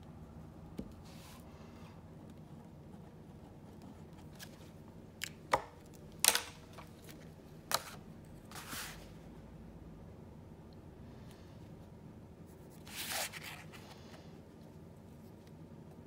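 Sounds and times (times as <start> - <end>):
ruler sliding across paper: 8.5 - 9.1.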